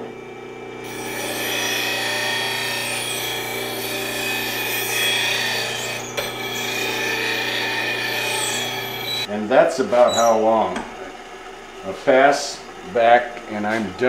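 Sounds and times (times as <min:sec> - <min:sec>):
bench grinder motor hum: 0:00.0 - 0:09.3
gouge rasping on grinding wheel: 0:00.9 - 0:09.3.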